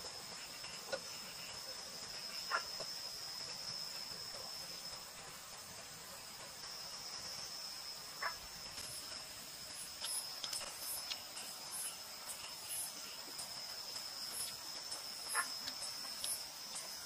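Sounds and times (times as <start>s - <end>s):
crickets chirping: 0.0s - 17.0s
faint ticks: 8.2s - 17.0s.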